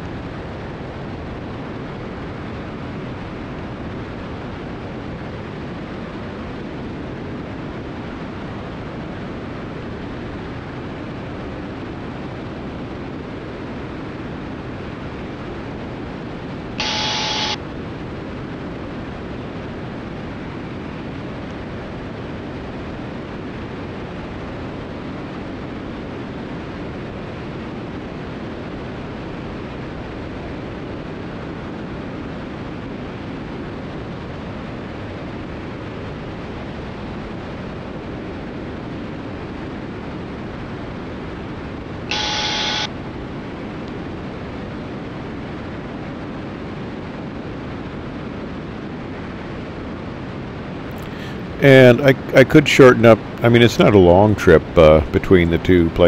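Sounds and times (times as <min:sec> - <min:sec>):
aircraft cabin engine and airflow: 0:00.0 - 0:56.0
short tonal burst: 0:16.8 - 0:17.6, 0:42.1 - 0:42.9.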